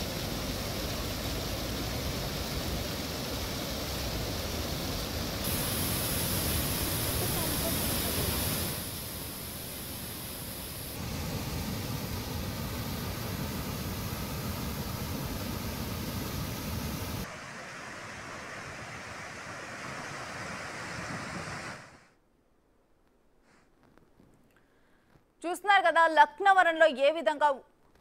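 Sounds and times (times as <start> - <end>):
floodwater rushing over weir: 0.0 - 22.0.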